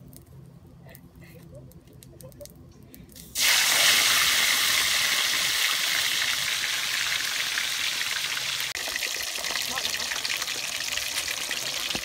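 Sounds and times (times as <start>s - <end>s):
fish frying in hot oil: 3.3s - 12.0s.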